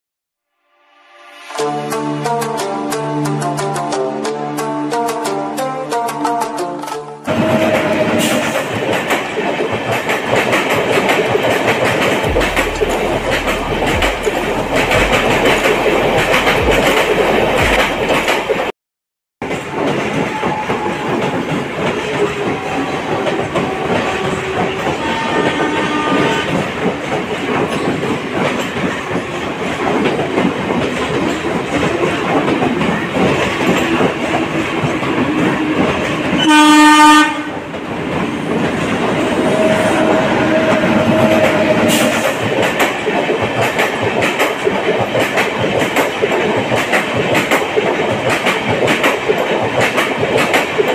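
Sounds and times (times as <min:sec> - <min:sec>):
locomotive horn: 0:06.0 - 0:08.7, 0:22.0 - 0:26.6, 0:34.4 - 0:37.6, 0:39.2 - 0:42.4
train wheels clattering over rail joints: 0:07.3 - 0:18.7, 0:19.4 - 0:36.4, 0:40.6 - 0:50.9.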